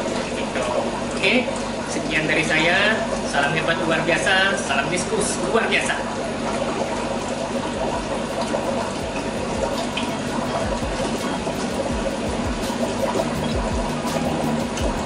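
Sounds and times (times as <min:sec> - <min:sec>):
steady low hum: 0:00.0 - 0:15.0
water trickling and bubbling: 0:00.0 - 0:15.0
soft low thumps: 0:07.9 - 0:15.0.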